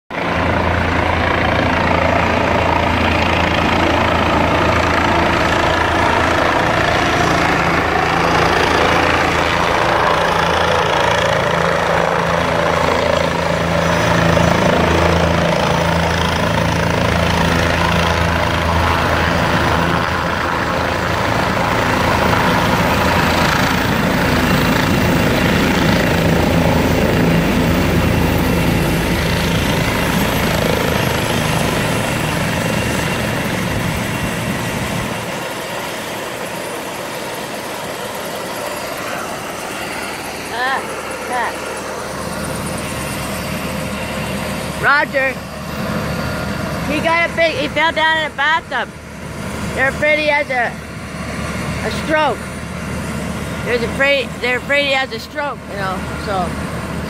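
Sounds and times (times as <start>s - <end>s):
helicopter rotor and engine: 0.1s - 57.0s.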